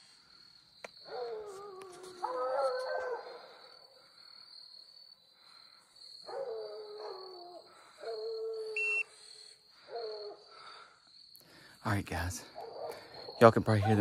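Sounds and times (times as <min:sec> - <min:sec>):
hounds baying in the distance: 0:01.0 - 0:04.3, 0:06.1 - 0:11.0, 0:12.4 - 0:14.0.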